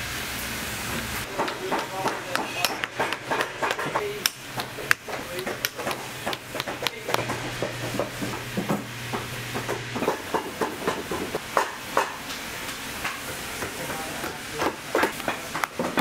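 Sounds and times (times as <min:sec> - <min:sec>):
hammer tapping nails: 0:01.3 - 0:12.1
sharp clicks and taps: 0:01.4 - 0:07.4.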